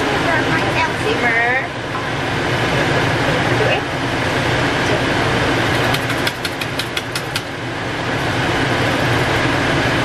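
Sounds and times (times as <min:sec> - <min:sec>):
steady low hum: 0:00.0 - 0:10.0
quick run of clicks: 0:05.7 - 0:07.5.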